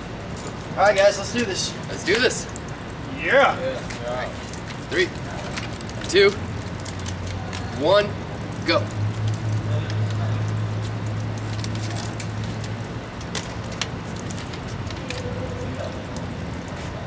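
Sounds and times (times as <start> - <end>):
steady low hum: 0.0 - 17.0
candy packets and cans crinkling: 3.8 - 16.7.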